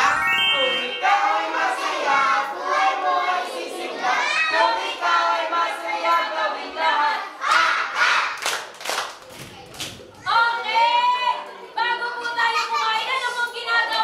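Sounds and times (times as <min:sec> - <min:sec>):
children singing: 0:00.0 - 0:08.2.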